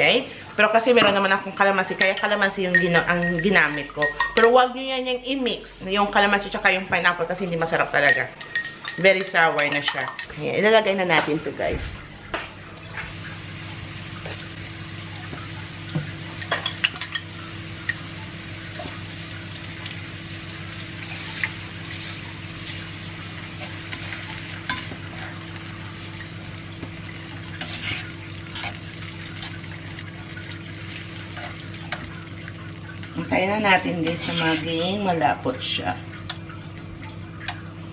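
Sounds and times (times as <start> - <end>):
utensil clinking against pan: 2.0 - 4.6, 8.0 - 10.3, 16.4 - 17.3
vegetables sizzling in a pan: 13.0 - 36.4.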